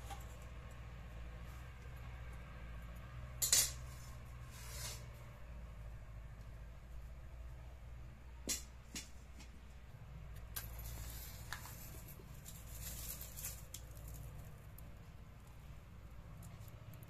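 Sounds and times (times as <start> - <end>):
scratching and rustling: 10.6 - 15.6.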